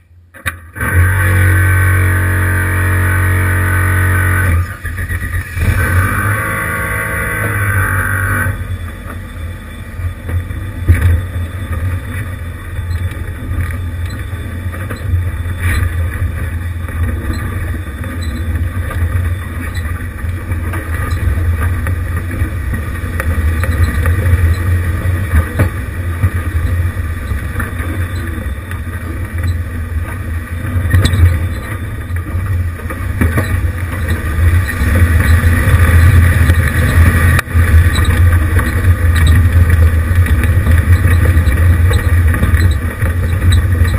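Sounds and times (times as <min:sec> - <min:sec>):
low engine rumble: 0:00.0 - 0:43.9.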